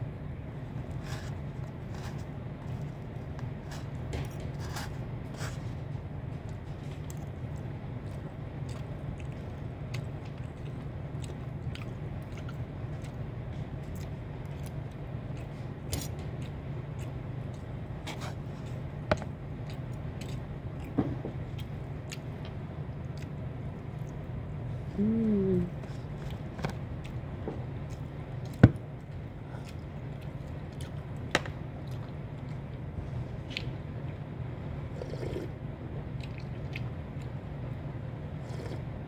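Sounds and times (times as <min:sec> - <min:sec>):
steady low hum: 0:00.0 - 0:39.0
chewing: 0:06.5 - 0:24.2, 0:27.8 - 0:32.8, 0:34.9 - 0:35.5, 0:36.2 - 0:37.4, 0:38.4 - 0:38.9
person humming: 0:24.9 - 0:25.8.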